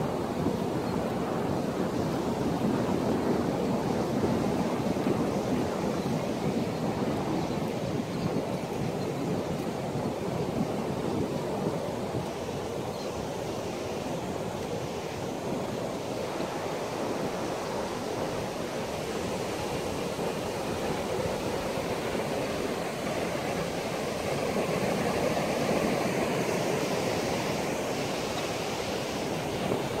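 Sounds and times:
ocean surf breaking on sand: 0.0s - 30.0s.

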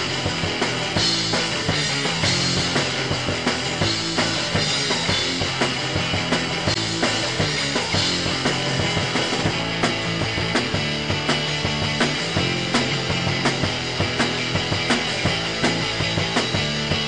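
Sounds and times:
bass line: 0.0s - 17.0s
drum kit beat: 0.0s - 17.0s.

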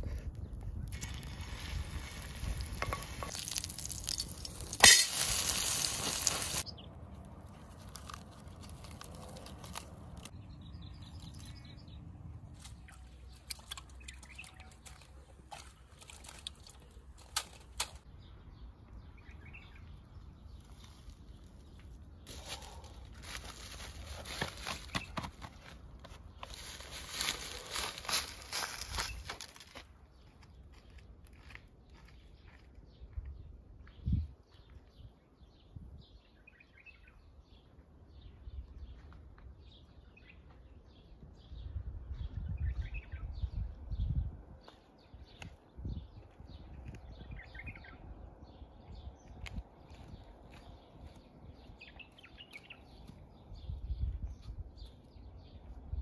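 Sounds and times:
dry leaves rustling and crackling: 0.9s - 6.6s, 7.2s - 10.4s, 22.3s - 25.1s, 26.4s - 29.9s
batter sizzling in hot oil: 1.0s - 6.6s.

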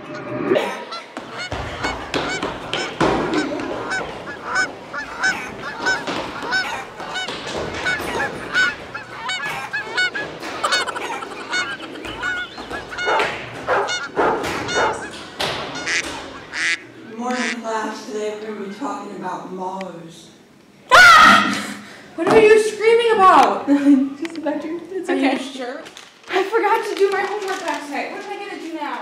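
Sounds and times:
short honking calls: 0.9s - 17.6s.

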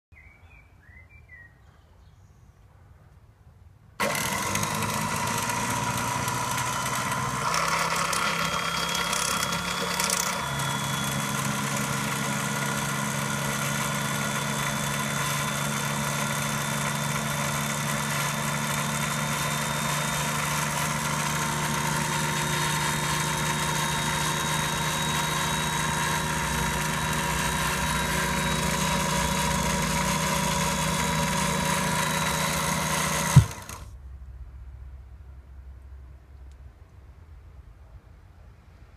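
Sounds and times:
drill motor humming and whining: 4.0s - 33.9s.

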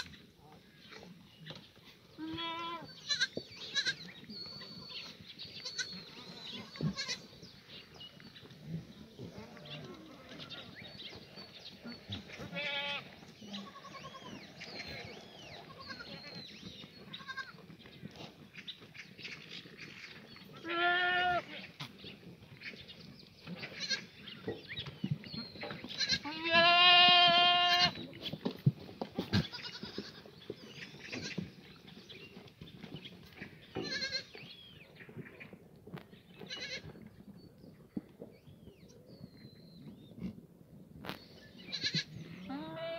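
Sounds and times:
goats bleating: 2.2s - 4.0s, 5.6s - 7.3s, 12.4s - 14.4s, 17.1s - 17.6s, 20.5s - 21.7s, 23.8s - 24.1s, 26.0s - 28.0s, 29.2s - 30.2s, 33.8s - 34.3s, 41.7s - 42.9s.

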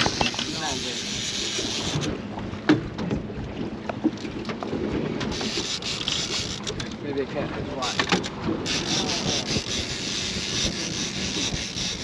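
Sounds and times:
water slapping boat hull: 0.0s - 12.0s
wind buffeting microphone: 4.6s - 12.0s.

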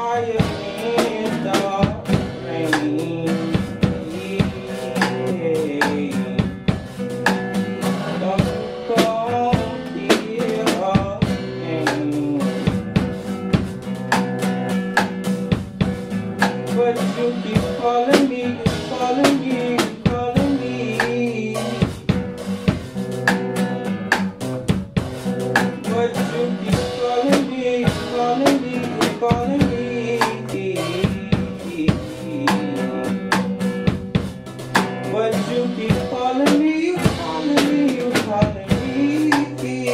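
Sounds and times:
acoustic guitar chords: 0.0s - 39.9s
drum kit beat: 0.0s - 39.9s.

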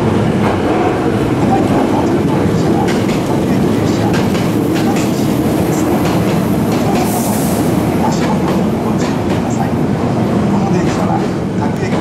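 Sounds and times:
electric train rumbling past: 0.0s - 12.0s
train wheels clicking over rail joints: 0.4s - 9.6s.

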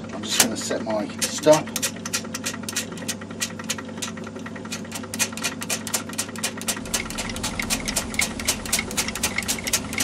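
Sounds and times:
light regular ticking: 1.2s - 10.0s
lathe humming: 6.8s - 10.0s
low rumble: 6.8s - 10.0s.

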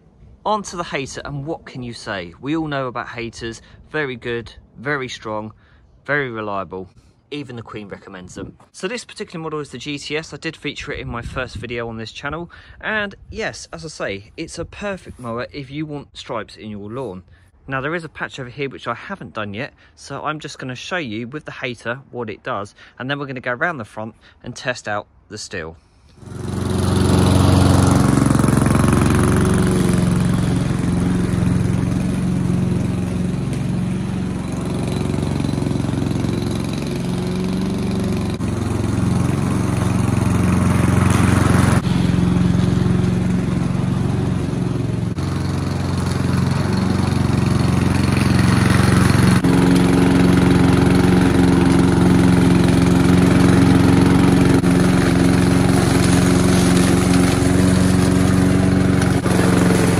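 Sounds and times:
lawn mower engine running: 26.1s - 59.9s.

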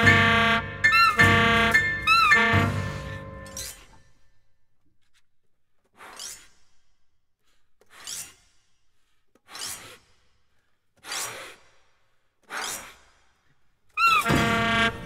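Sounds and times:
breathy saxophone air tones: 0.0s - 3.4s.

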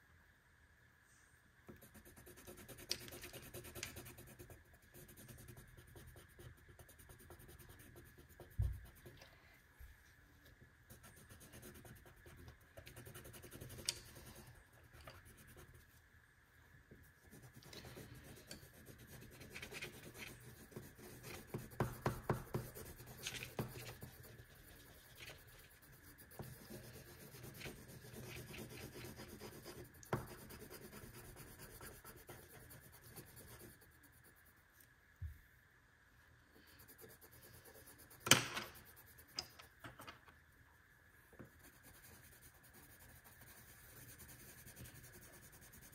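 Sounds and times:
marker scratching on paper: 1.7s - 9.2s, 10.9s - 15.9s, 17.1s - 34.4s, 36.7s - 39.5s, 41.6s - 45.9s.

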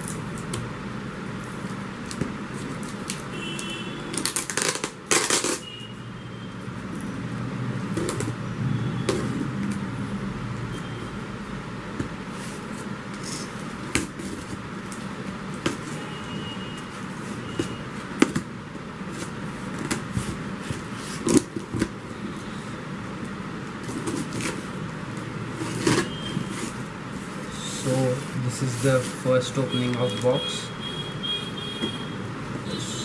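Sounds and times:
steady background noise: 0.0s - 33.0s
knife slitting packing tape: 4.1s - 5.7s
tape tearing rips: 4.1s - 5.7s.

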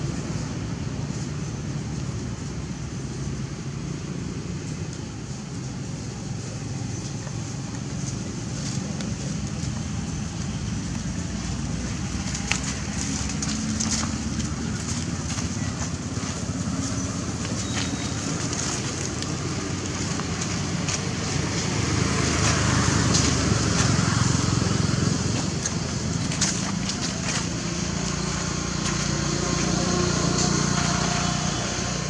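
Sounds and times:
low outdoor rumble: 0.0s - 32.0s
footsteps on dry leaves: 5.8s - 32.0s.

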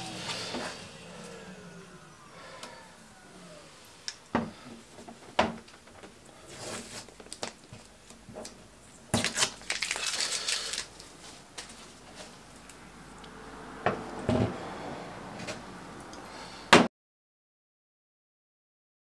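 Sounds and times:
masking tape being pulled and torn: 8.4s - 11.8s.

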